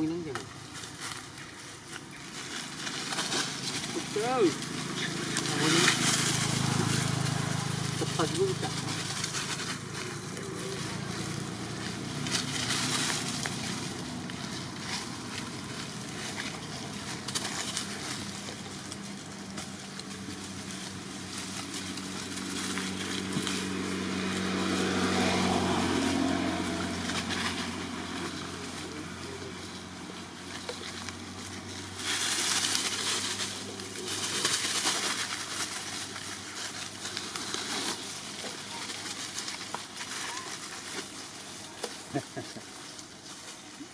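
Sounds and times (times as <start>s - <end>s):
dry leaves rustling: 0.0s - 43.9s.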